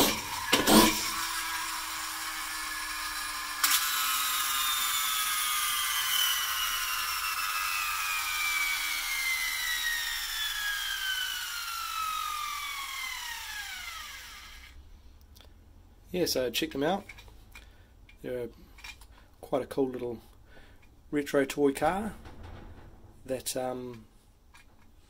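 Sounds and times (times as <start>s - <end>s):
toy car flywheel whine: 0.0s - 14.8s.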